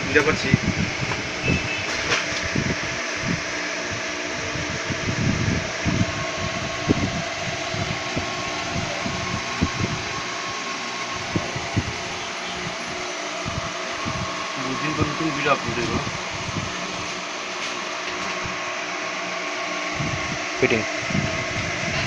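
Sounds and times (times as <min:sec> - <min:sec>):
electric fan whirring: 0:00.0 - 0:22.0.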